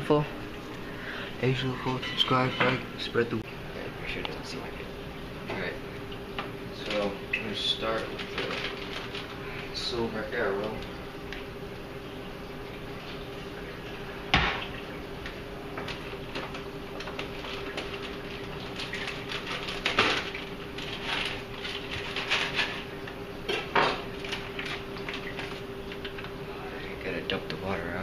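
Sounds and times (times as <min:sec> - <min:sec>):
steady hum: 0:00.0 - 0:28.0.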